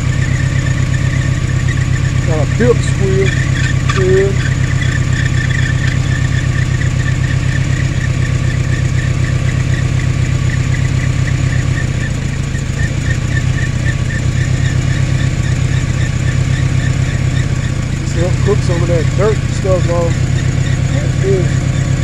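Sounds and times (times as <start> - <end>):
pickup engine idling: 0.0 - 22.0
squealing drive belt chirp: 0.0 - 22.0.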